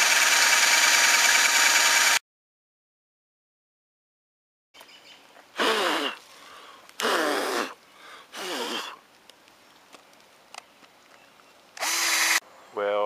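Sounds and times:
cordless drill boring into wood: 0:00.0 - 0:02.2, 0:11.8 - 0:12.4.

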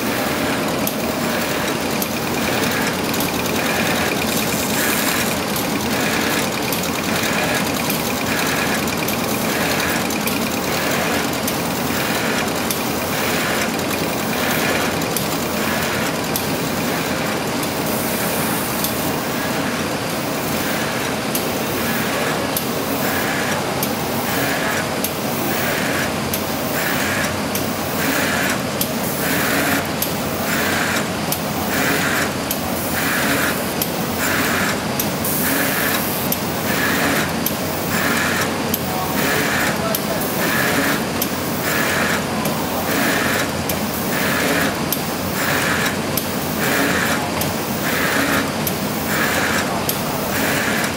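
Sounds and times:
laminating machine running: 0:00.0 - 0:50.9.

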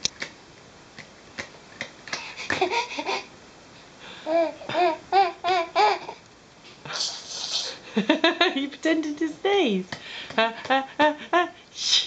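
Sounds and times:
baby giggling: 0:02.3 - 0:03.3, 0:04.3 - 0:06.2
baby babbling: 0:04.3 - 0:06.2.

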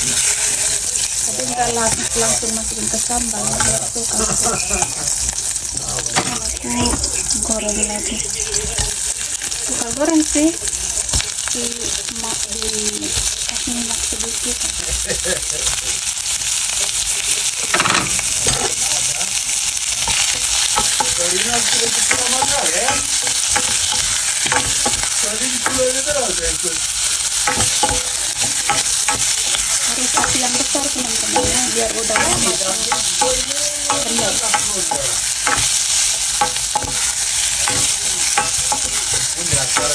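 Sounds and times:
spoon scraping pan: 0:00.0 - 0:05.4, 0:19.8 - 0:39.9
prawns sizzling in hot oil: 0:00.0 - 0:39.9.

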